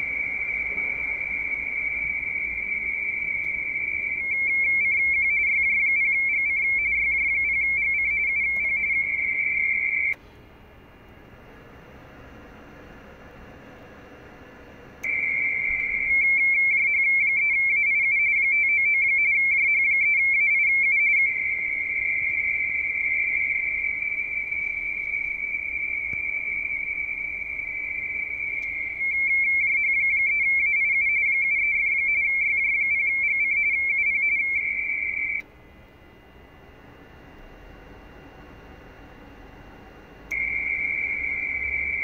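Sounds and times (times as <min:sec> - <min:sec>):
radio-teletype tones: 0:00.0 - 0:10.2, 0:15.0 - 0:35.5, 0:40.3 - 0:42.0.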